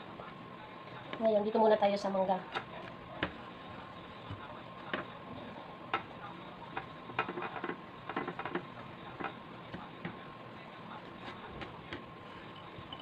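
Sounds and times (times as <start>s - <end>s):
faint steady hum: 0.0s - 13.0s
hands clicking and tapping in dish: 6.7s - 10.2s.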